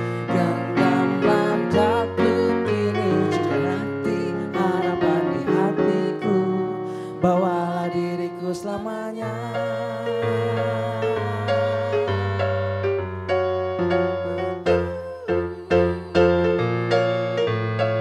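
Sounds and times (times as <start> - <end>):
man and woman singing: 0.0 - 12.9, 14.3 - 16.6
keyboard piano chords: 0.0 - 18.0.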